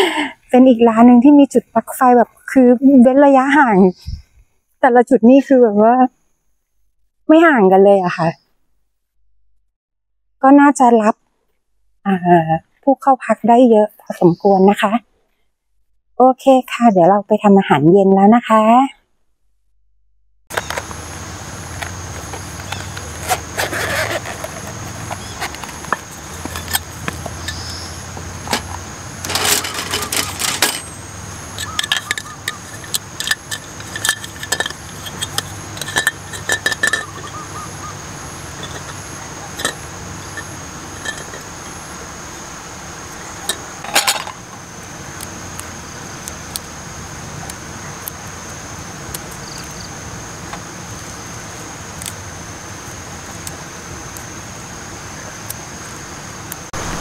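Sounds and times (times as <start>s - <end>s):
camping gear clinking on metal table: 21.8s - 31.0s, 31.6s - 37.8s, 38.4s - 41.7s, 43.4s - 44.5s.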